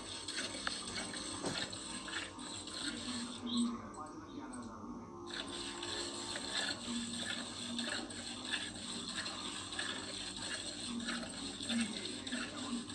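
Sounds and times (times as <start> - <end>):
milk squirting into metal pail: 0.0 - 3.6, 5.3 - 12.9.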